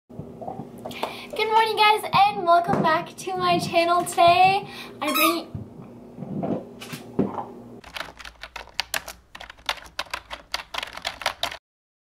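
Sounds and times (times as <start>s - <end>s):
keyboard typing clicks: 7.8s - 11.6s.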